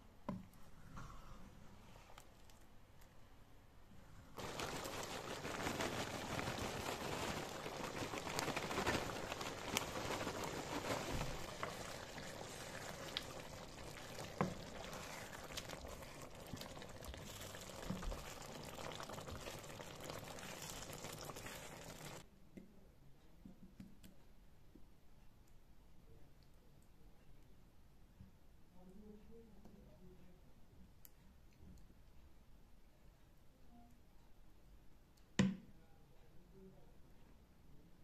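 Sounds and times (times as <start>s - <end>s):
stew bubbling in a frying pan: 4.4s - 22.2s
wooden spoon stirring: 4.4s - 22.2s.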